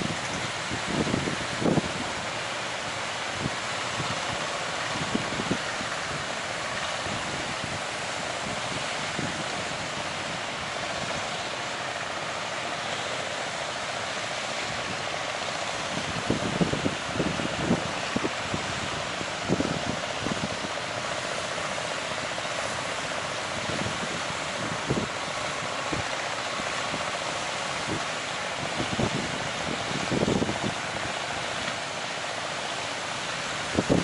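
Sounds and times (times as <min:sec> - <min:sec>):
ocean surf breaking: 0:00.0 - 0:34.0.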